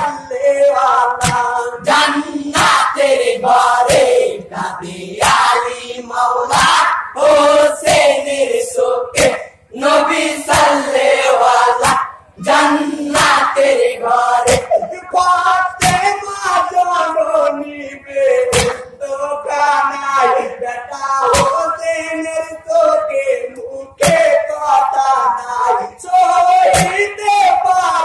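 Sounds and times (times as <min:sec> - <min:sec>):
men singing a lament: 0:00.0 - 0:28.0
sharp percussive beat: 0:01.2 - 0:03.0, 0:03.8 - 0:04.3, 0:09.2 - 0:09.6, 0:10.4 - 0:11.0, 0:11.7 - 0:12.2, 0:13.1 - 0:13.6, 0:14.4 - 0:14.9, 0:15.8 - 0:16.2, 0:18.5 - 0:18.9.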